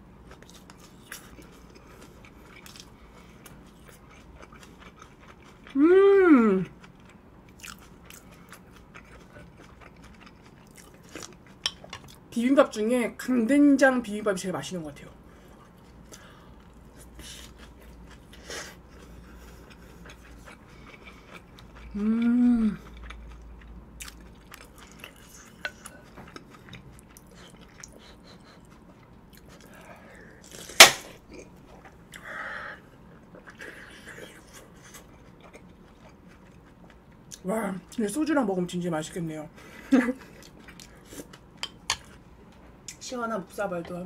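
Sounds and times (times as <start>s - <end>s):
person chewing food: 0.2s - 12.3s, 15.3s - 37.4s, 39.6s - 43.0s
person humming with enjoyment: 5.8s - 6.7s, 22.0s - 22.8s.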